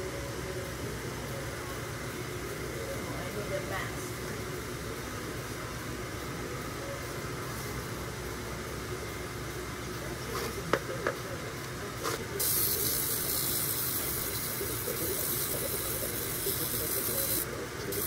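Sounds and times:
flat lap disc spinning: 12.2s - 18.0s
loud steady hiss: 12.3s - 18.0s.

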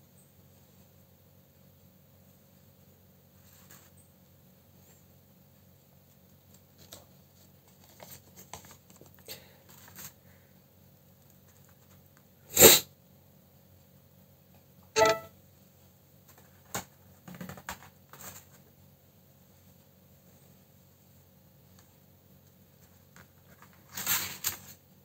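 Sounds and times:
paper cards rustling and clicking: 6.2s - 10.2s, 22.8s - 24.8s
brief tone: 15.0s - 15.3s.

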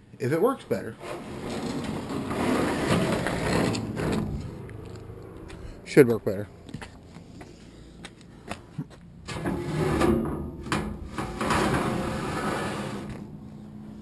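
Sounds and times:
metal door grating scrape: 1.0s - 5.8s, 9.2s - 14.0s.

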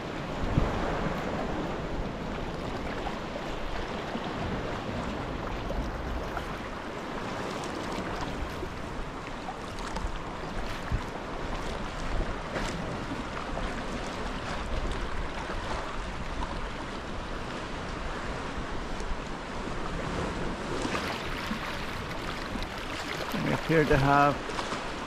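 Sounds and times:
wind on microphone: 0.0s - 23.9s
water sloshing against kayak: 0.0s - 25.0s
short splashes: 20.7s - 24.9s.

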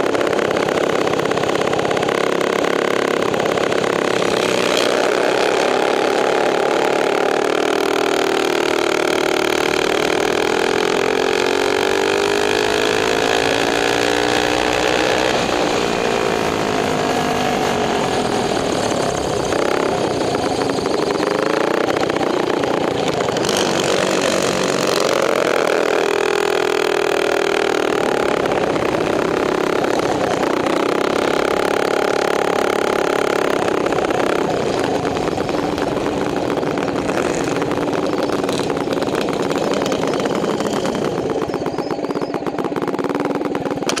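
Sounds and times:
small engine revving: 0.0s - 44.0s.

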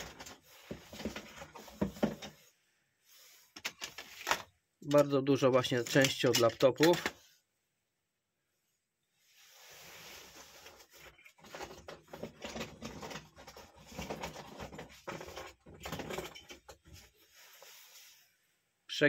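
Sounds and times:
electronic scrap rustling and clattering: 9.8s - 18.0s.

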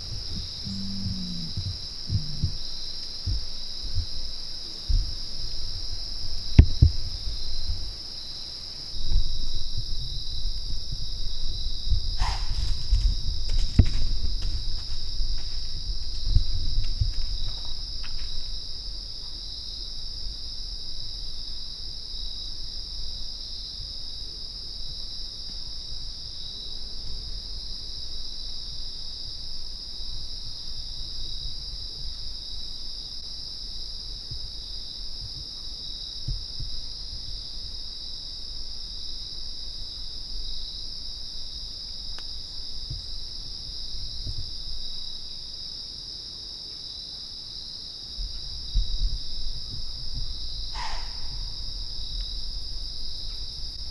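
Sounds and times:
low rumble: 0.0s - 7.9s
insects trilling: 0.0s - 53.9s.

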